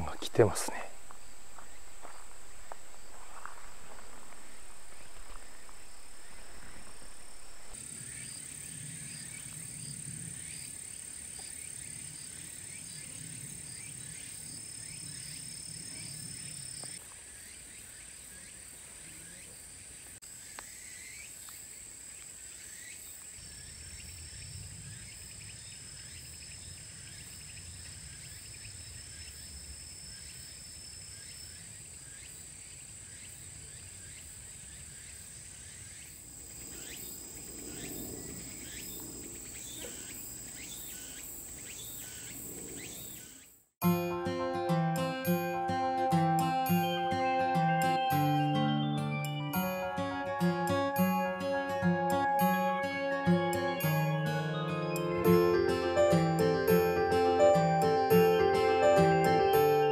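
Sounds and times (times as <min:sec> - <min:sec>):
faint low rumble: 0:00.0 - 0:07.8
insects trilling: 0:00.1 - 0:43.6.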